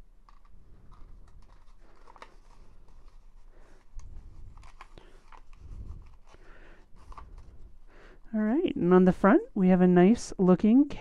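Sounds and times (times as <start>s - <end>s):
cardstock rustling and clicking: 0.0s - 7.6s.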